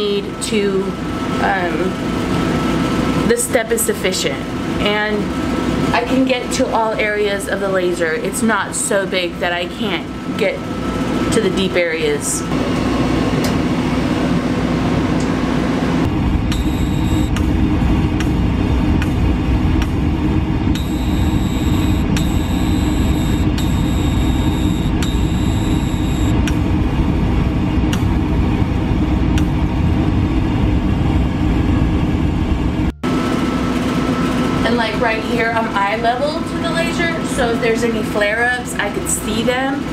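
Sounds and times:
high whine: 10.3 - 38.3
laser cutter humming with ticks: 16.0 - 20.0, 20.7 - 26.7.

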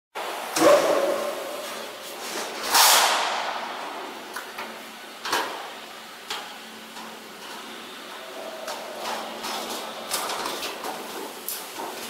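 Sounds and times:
loud swish: 2.6 - 3.9.

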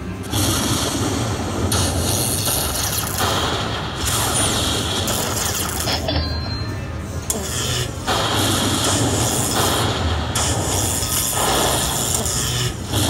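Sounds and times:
slot machine sound effects: 4.0 - 7.8.

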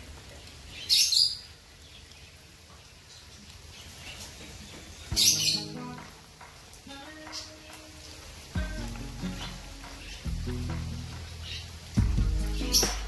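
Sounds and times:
bird chirping: 3.1 - 13.0.

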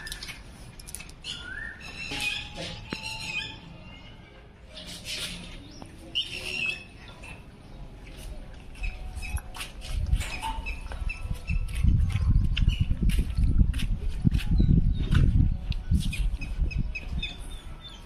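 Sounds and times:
puppies whining and squeaking: 1.2 - 7.4, 8.8 - 9.5, 10.1 - 13.0.

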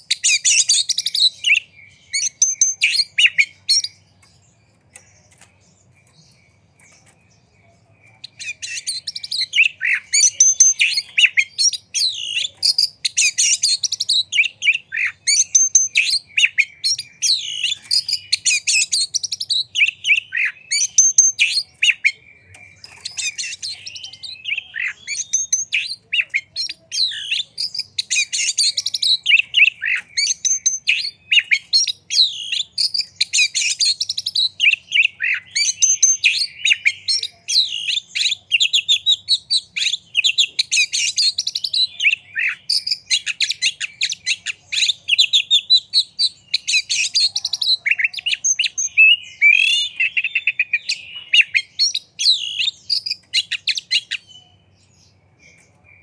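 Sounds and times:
bird singing varied song: 0.0 - 56.0.

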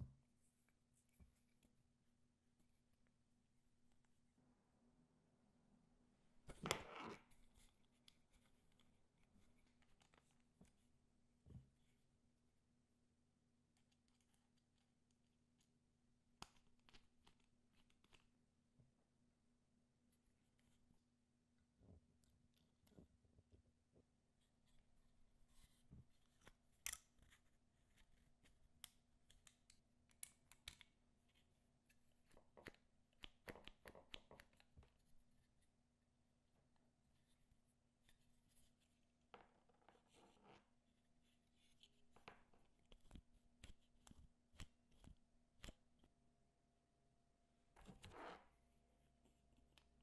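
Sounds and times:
small handwork clicks and scratches: 13.7 - 18.4, 25.5 - 35.6, 39.9 - 46.1.

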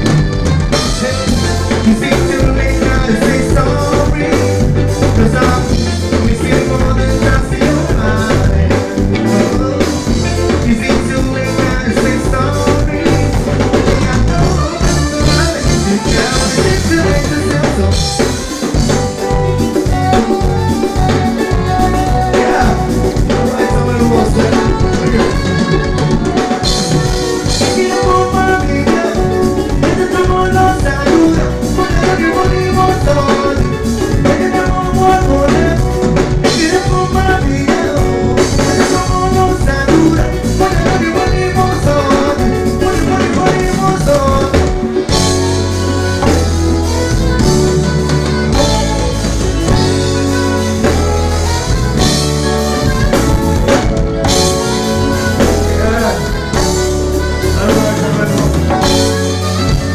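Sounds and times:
live band music: 0.0 - 59.9
person singing into microphone: 0.0 - 59.9.

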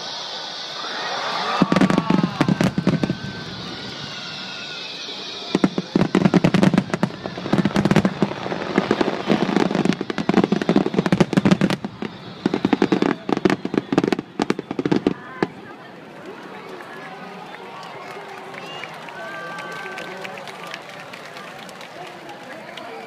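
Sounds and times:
faint falling whistle: 0.0 - 8.1
fireworks crackling: 0.0 - 22.4.

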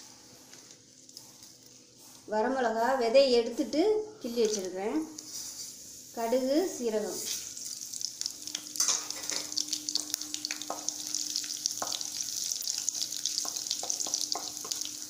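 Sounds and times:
seeds sizzling in hot oil: 5.2 - 15.0
wooden spatula stirring: 11.7 - 15.0.

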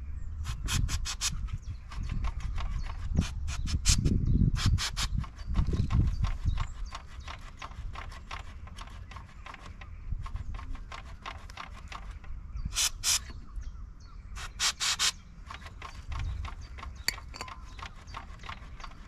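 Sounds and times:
aerosol can spraying hisses: 0.4 - 1.4, 12.7 - 13.3, 14.4 - 15.2
fast steady ticking: 5.0 - 13.2, 14.4 - 19.0.

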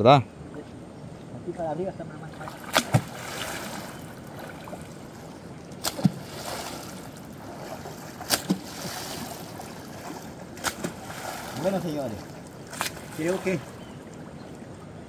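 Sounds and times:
river water running: 0.0 - 15.0
wooden pole slapping water: 2.4 - 5.0, 5.8 - 13.7.

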